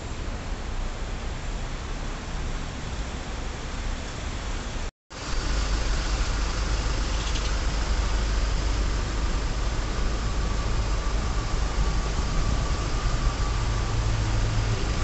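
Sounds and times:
steady rain falling: 0:00.1 - 0:15.0
low steady rumble: 0:05.2 - 0:15.0.

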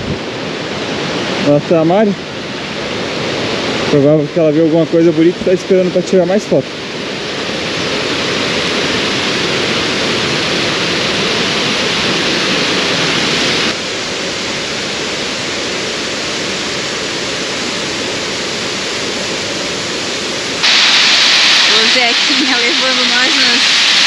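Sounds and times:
waterfall rushing: 0:00.0 - 0:24.0.

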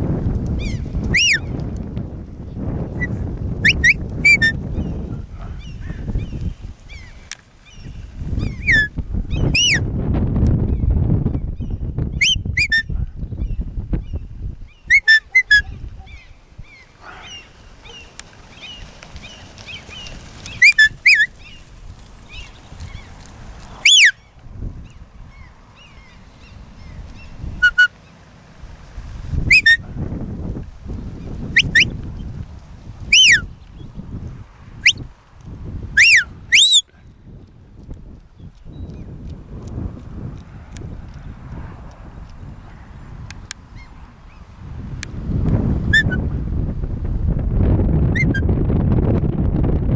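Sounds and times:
sharp high whistles: 0:01.1 - 0:01.4, 0:23.8 - 0:24.2, 0:36.0 - 0:36.9.

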